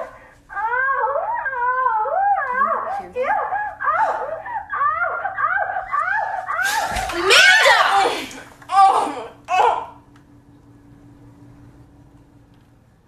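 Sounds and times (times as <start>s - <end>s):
voice making rising cries: 0.5s - 10.0s.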